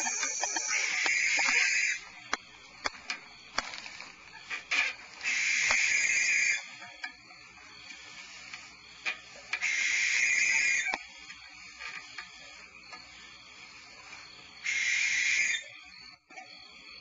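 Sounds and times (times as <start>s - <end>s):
barn owl hissing call: 0.0s - 2.0s, 5.2s - 6.7s, 9.6s - 10.9s, 14.6s - 15.7s.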